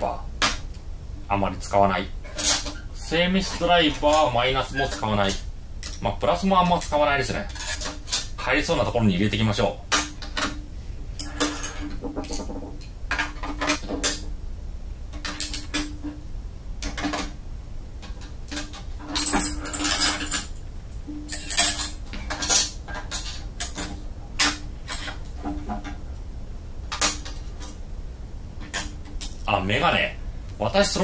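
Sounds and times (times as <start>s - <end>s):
metal tools clattering in toolbox: 18.5s - 20.6s, 21.3s - 25.2s.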